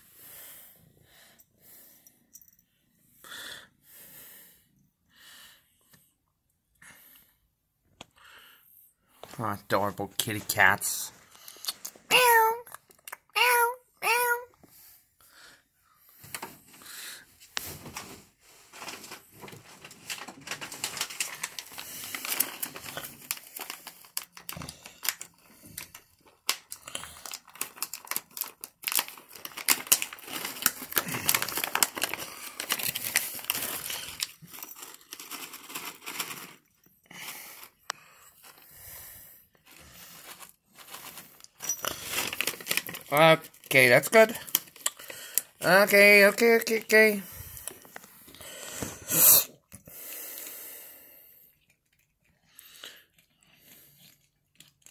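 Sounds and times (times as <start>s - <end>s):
crinkly wrapping crackling: 17.5s - 48.8s.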